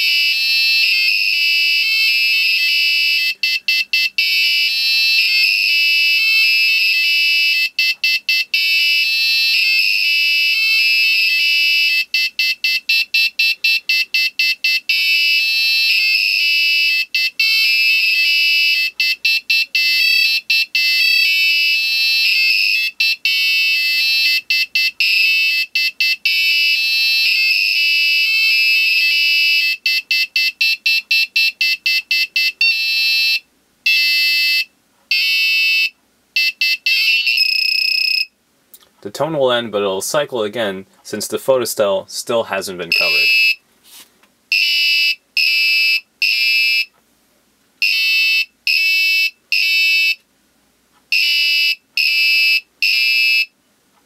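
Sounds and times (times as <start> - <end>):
buzzer alarm tone: 0.0 - 38.3, 42.9 - 43.6, 44.5 - 46.9, 47.8 - 50.2, 51.1 - 53.5
separate alarm beeps: 29.9 - 35.3, 36.4 - 38.3, 42.9 - 43.6.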